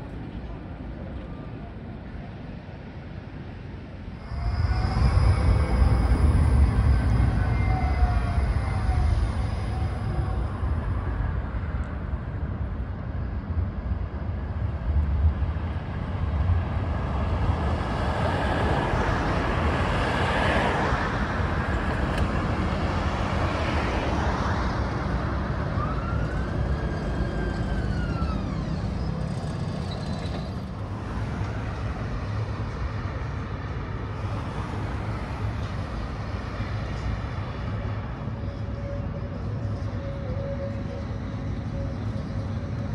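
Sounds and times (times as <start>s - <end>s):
tram rumbling along rails: 0.0s - 42.9s
tram wheel squeal: 4.0s - 12.4s, 17.4s - 42.9s.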